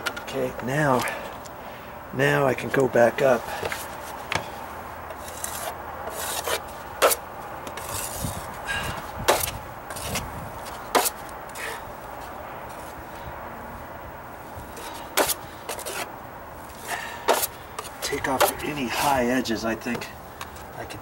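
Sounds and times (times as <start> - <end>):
putty knife scraping on wood: 5.1 - 8.4, 10.9 - 11.8, 14.8 - 16.1, 16.7 - 19.1.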